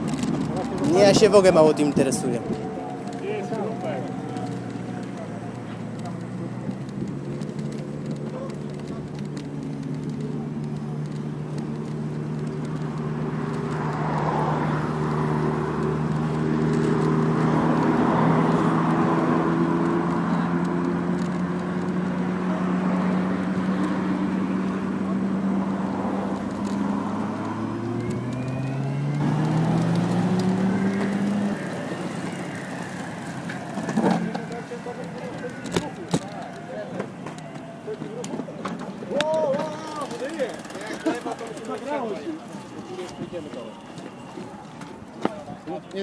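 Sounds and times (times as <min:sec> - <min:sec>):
tyre noise: 0:00.0 - 0:46.0
wind: 0:00.0 - 0:46.0.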